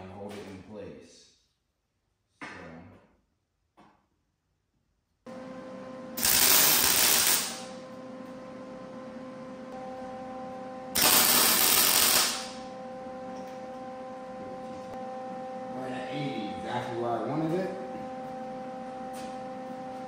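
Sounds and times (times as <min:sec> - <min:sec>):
welder crackling hiss: 0:06.2 - 0:07.7, 0:11.0 - 0:12.6.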